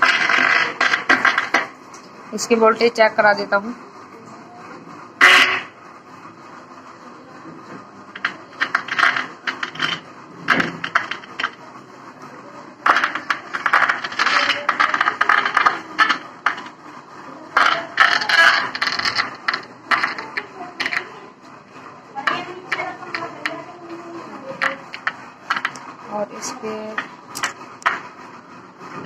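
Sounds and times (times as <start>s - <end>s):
test probes clicking and scraping: 0.0s - 2.1s, 8.1s - 11.6s, 12.8s - 21.5s, 22.1s - 28.2s.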